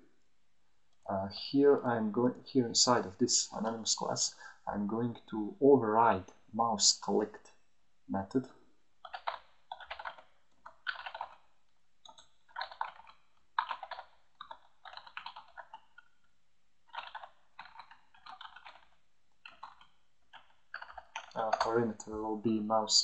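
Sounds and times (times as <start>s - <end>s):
typing on computer keyboard: 9.0s - 21.9s.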